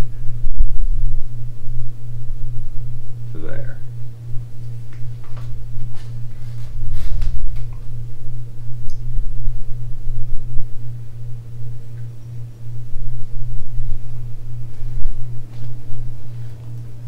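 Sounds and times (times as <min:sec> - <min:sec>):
low pulsing hum with rumble: 0:00.0 - 0:17.0.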